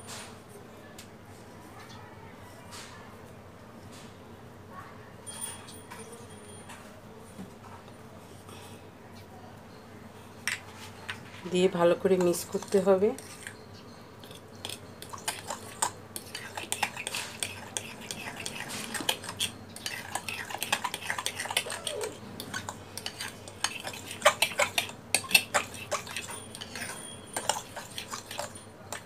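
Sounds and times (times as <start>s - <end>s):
spoon stirring batter in bowl: 10.5s - 29.0s.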